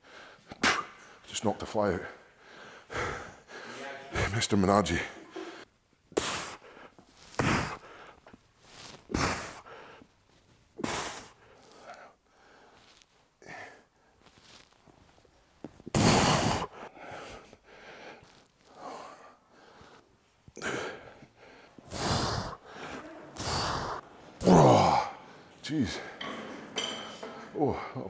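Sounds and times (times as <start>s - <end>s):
man breathing out forcefully: 20.6s - 24.0s.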